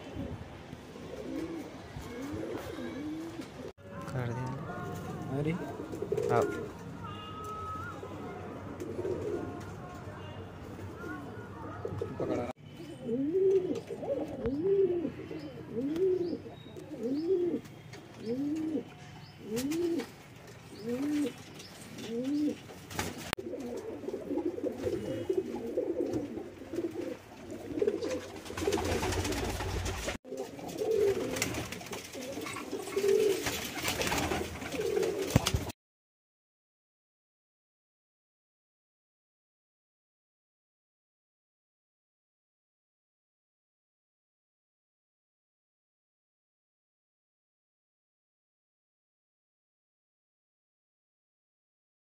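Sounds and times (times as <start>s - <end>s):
pigeons cooing: 0.0s - 3.7s, 5.6s - 8.1s, 8.7s - 9.7s, 10.9s - 17.6s, 18.2s - 20.1s, 20.7s - 22.6s, 23.4s - 35.4s.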